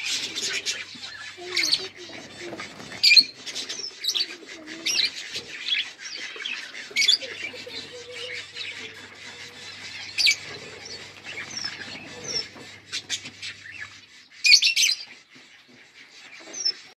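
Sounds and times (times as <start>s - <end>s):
lovebirds chirping: 0.0s - 17.0s.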